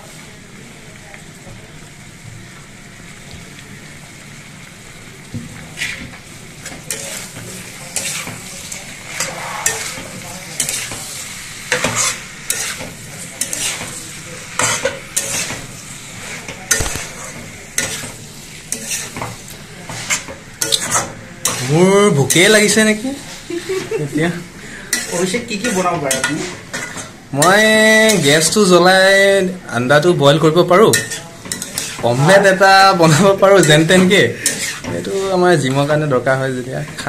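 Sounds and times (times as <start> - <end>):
food sizzling in a wok: 0.0 - 37.0
metal spatula scraping a wok: 5.8 - 23.9, 24.9 - 28.5, 30.9 - 35.9.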